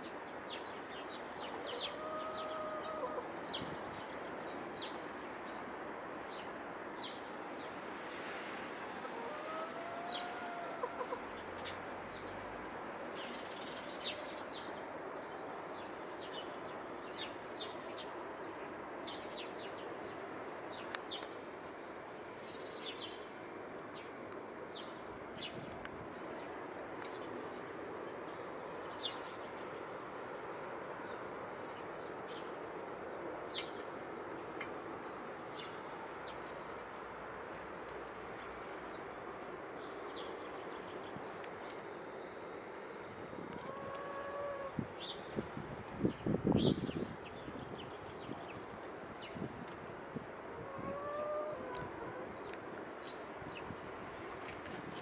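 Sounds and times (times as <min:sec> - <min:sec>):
steady background hiss: 0:00.0 - 0:55.0
hen calling: 0:43.6 - 0:44.8, 0:50.6 - 0:52.3.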